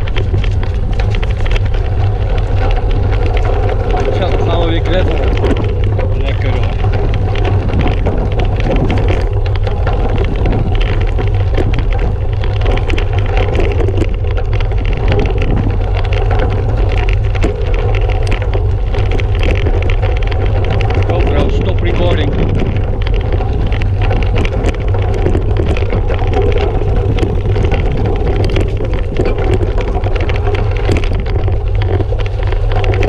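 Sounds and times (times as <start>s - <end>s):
bike tyres crunching on dirt: 0.0s - 33.0s
wind rumble on microphone: 0.0s - 33.0s.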